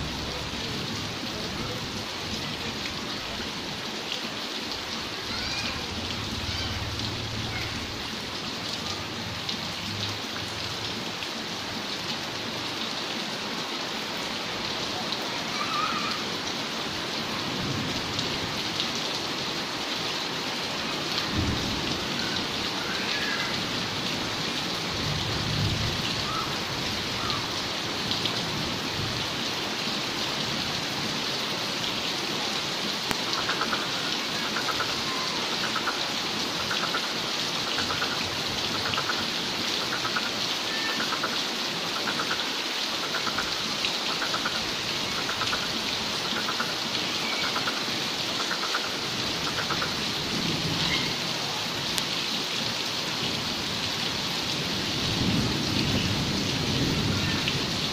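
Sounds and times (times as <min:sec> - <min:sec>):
steady rain falling: 0:00.0 - 0:57.9.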